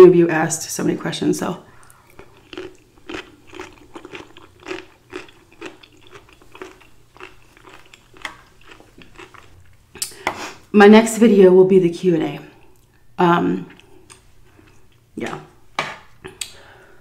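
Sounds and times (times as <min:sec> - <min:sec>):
crunchy chewing: 0:01.7 - 0:10.2.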